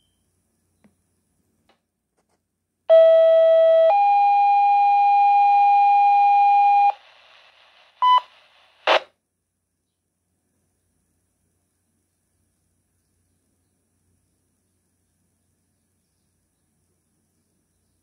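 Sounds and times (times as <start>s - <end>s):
radio static burst: 6.7s - 9.1s.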